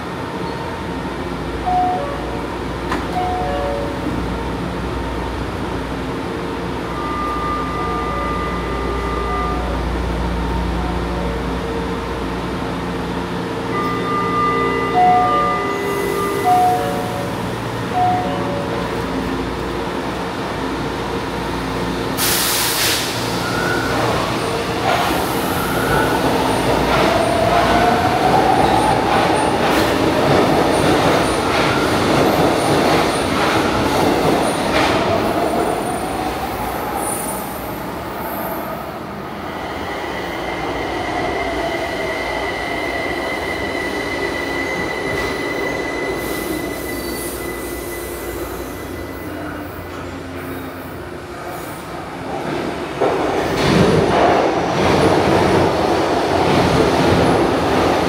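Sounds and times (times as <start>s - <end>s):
wheels squealing on rails: 39.5s - 51.8s.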